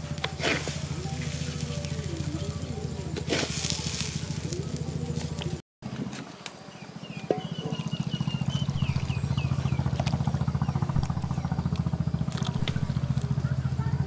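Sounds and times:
small engine running: 0:00.0 - 0:06.1, 0:06.7 - 0:14.0
bird chirping: 0:06.6 - 0:11.8.

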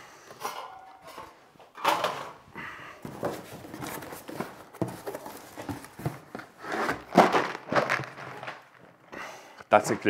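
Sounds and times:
plastic packing rustling: 0:03.0 - 0:09.1.

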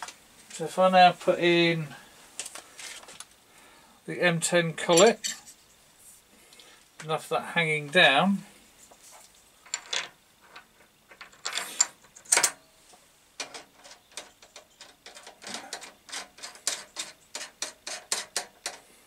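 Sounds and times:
metal clicks and scrapes: 0:13.4 - 0:18.9.

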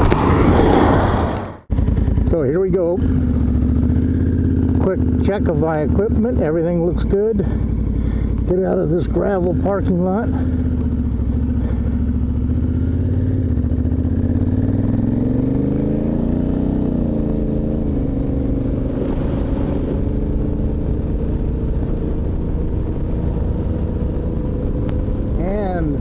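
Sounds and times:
motorcycle engine accelerating: 0:00.0 - 0:26.0.

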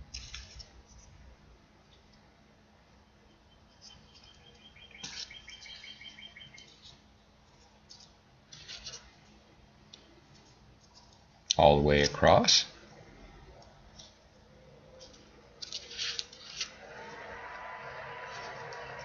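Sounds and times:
high twittering chirps: 0:03.3 - 0:06.9
paper crinkling and rustling: 0:15.0 - 0:16.7.

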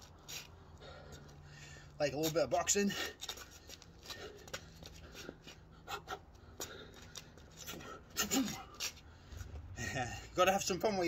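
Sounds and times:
footsteps: 0:02.2 - 0:09.8.

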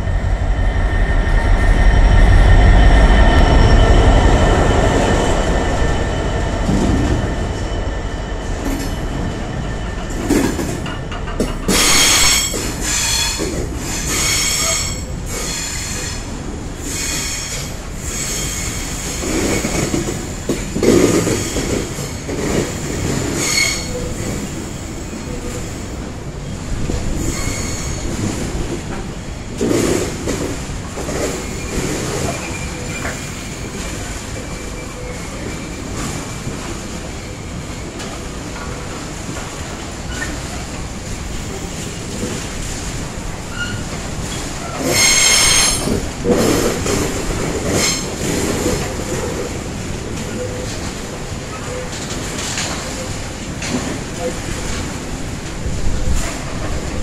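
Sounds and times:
diesel locomotive passing: 0:00.0 - 0:57.0
wheel squeal and clatter: 0:23.4 - 0:24.2, 0:27.2 - 0:28.2, 0:43.5 - 0:46.0.

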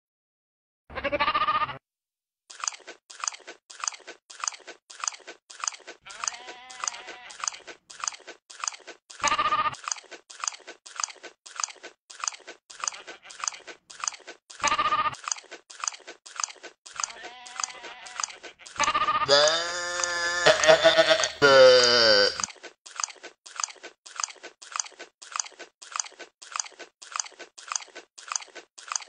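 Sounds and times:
goat bleating: 0:00.9 - 0:01.8, 0:06.1 - 0:07.6, 0:09.2 - 0:09.8, 0:12.8 - 0:13.6, 0:14.6 - 0:15.2, 0:17.1 - 0:22.4
rhythmic crunching of chewing: 0:02.5 - 0:29.0.

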